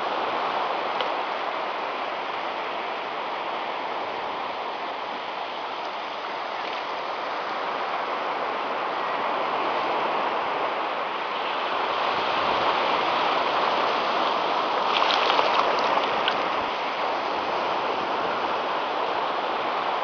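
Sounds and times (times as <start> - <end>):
waves washing onto beach: 0.0 - 20.0.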